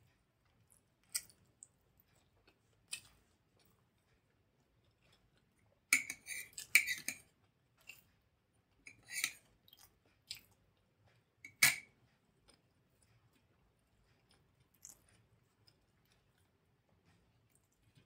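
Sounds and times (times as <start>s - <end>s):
chewing: 0.1s - 11.3s, 12.2s - 18.0s
metal spoon clinking in ceramic bowl: 5.9s - 7.2s.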